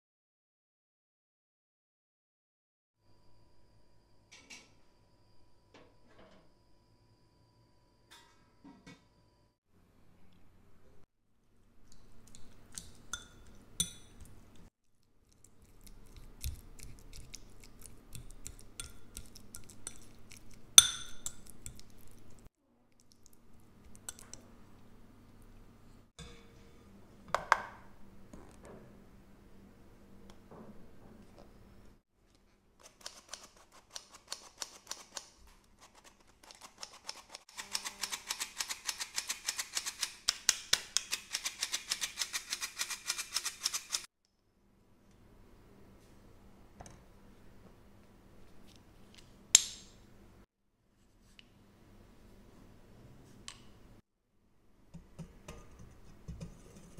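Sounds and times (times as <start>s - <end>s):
fork clinking against ceramic bowl: 12.7s - 14.3s, 18.2s - 21.8s.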